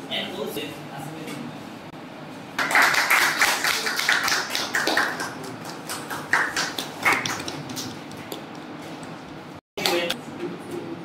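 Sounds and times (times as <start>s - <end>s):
small group clapping: 2.6s - 8.8s, 9.8s - 10.2s.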